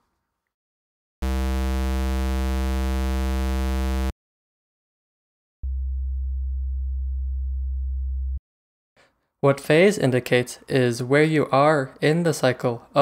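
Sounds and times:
buzzy synthesizer test tone: 1.2 - 4.1
low sine-wave tone: 1.2 - 4.1, 5.6 - 8.4.

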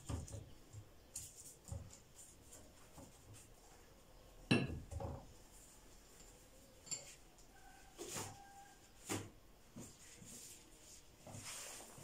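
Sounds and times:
pastry sheets rustling: 5.3 - 12.0.

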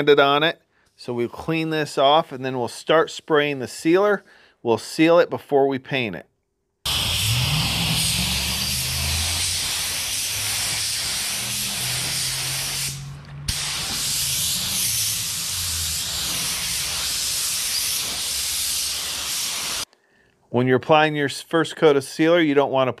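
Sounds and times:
low hum: 6.9 - 17.2
spray gun air hissing: 6.9 - 19.9.

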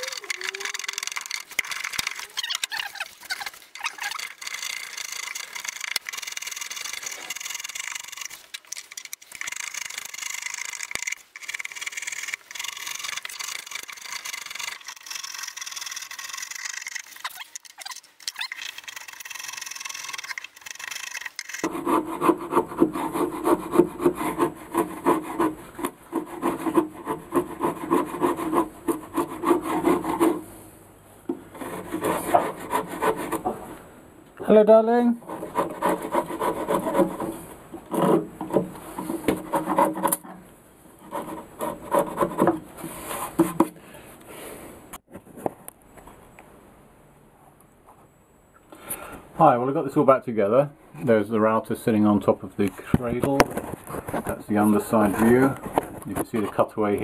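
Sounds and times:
rasp scraping wood: 0.0 - 17.7, 18.5 - 30.5, 31.4 - 33.6, 35.2 - 40.2, 41.0 - 43.8.

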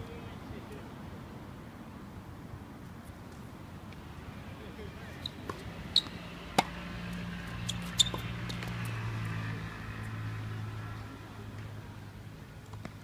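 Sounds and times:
tennis ball hit by rackets: 5.3 - 8.9
ball bouncing on hard court: 5.4 - 6.8, 7.5 - 8.8.

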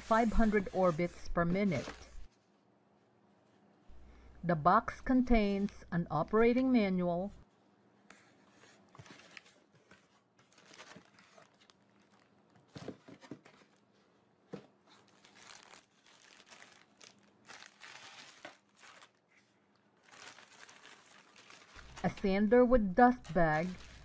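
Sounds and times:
plastic bag crinkling: 10.5 - 12.5, 14.9 - 19.2, 20.0 - 22.2, 23.5 - 24.0.

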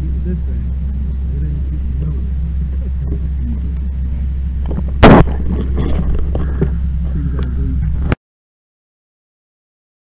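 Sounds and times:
low mechanical drone: 0.0 - 8.2
loud sharp bang: 4.7 - 6.0.

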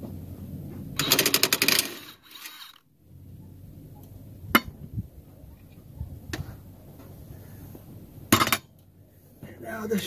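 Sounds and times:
impact wrench rattling: 1.0 - 2.8.

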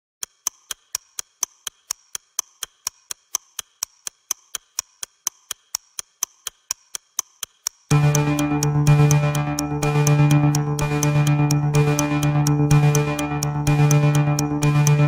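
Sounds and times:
rapid clock ticking: 0.2 - 15.0.

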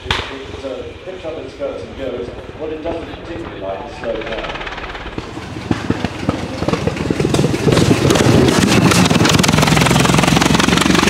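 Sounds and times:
car engine running unevenly: 2.3 - 11.0.

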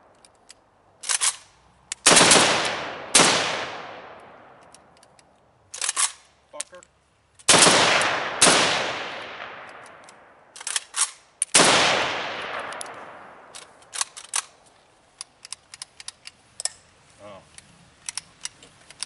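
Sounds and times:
rifle shots: 2.0 - 4.6, 7.5 - 14.2
small clicks and rattles: 12.7 - 16.9.

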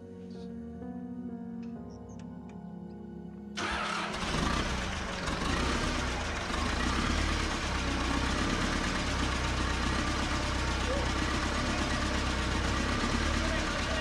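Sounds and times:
diesel engine starting and running: 3.6 - 14.0.

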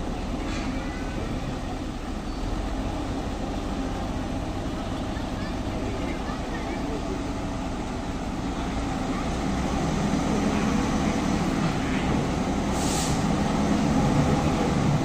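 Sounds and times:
heavy truck engine running: 0.0 - 15.0
short air hiss: 12.7 - 13.4.

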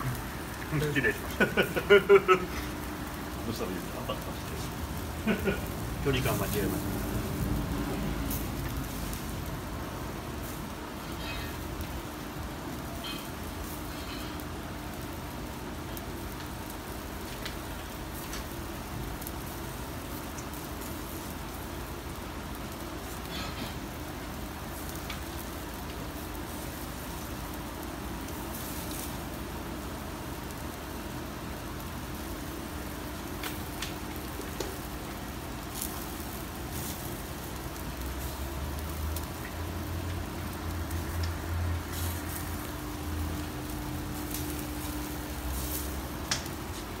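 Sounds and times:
crackles and pops: 0.0 - 47.0
skewers sizzling on grill: 0.0 - 47.0
low rumble: 2.6 - 11.0.

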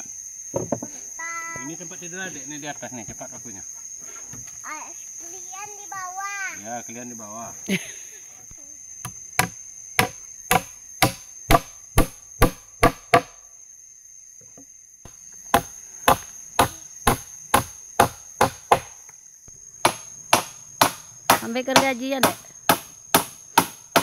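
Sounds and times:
high insect whine: 0.0 - 24.0
hammering nails into wood: 9.0 - 13.4, 15.5 - 19.0, 19.8 - 24.0.

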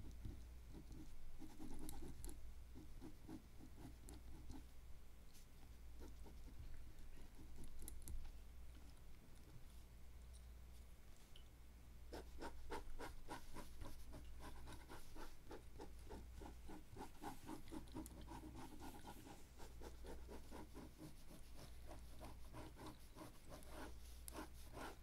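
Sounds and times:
pen scratching on paper: 0.2 - 4.6, 12.1 - 25.0.

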